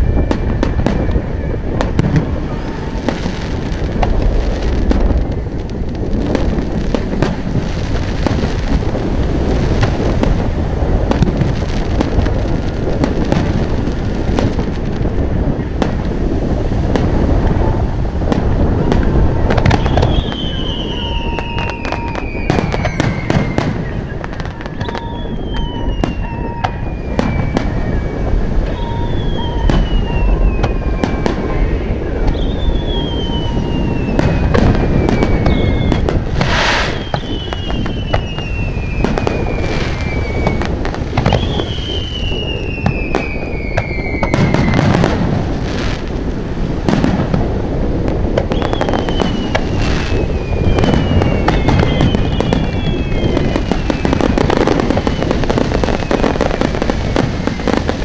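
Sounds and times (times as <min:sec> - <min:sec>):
fireworks bursting with bangs: 0:00.0 - 0:58.0
hissing crackling burst: 0:00.0 - 0:58.0
falling whistle: 0:19.3 - 0:44.9, 0:48.5 - 0:57.8.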